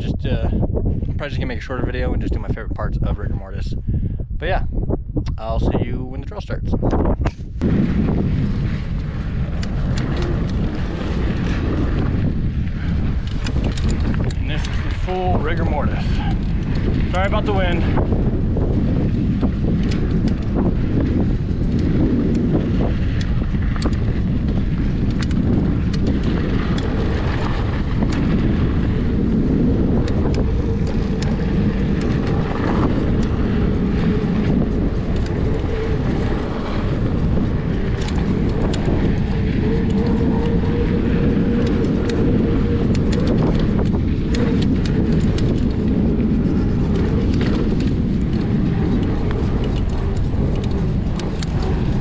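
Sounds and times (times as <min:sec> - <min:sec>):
wind buffeting microphone: 0:00.0 - 0:52.0
bike clicks and rattles: 0:05.4 - 0:52.0.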